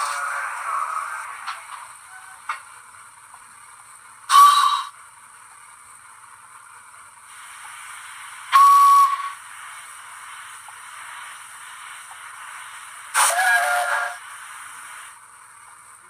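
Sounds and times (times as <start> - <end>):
faint steam hiss: 0.0 - 16.0
steam whistle blasts: 4.3 - 5.0, 8.5 - 9.4, 13.1 - 14.2.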